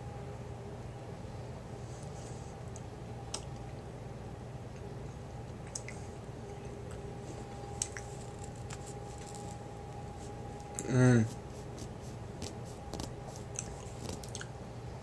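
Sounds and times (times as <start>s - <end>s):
low background hum: 0.0s - 15.0s
person biting and chewing: 11.8s - 14.5s.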